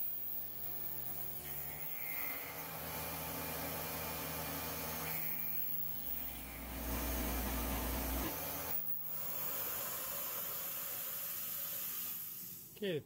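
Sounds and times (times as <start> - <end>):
milling machine cutting metal: 0.0 - 12.6.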